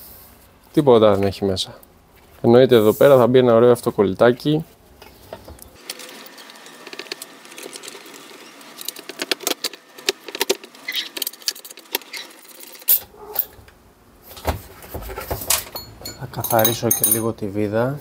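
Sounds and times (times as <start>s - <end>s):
parts handled on workbench: 14.3s - 17.3s
hand tool clicking and rattling: 15.5s - 17.3s.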